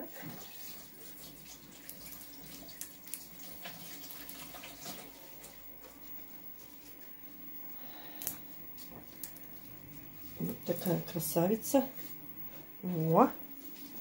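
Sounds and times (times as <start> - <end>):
water running from a tap: 0.0 - 7.4
low steady hum: 0.0 - 14.0.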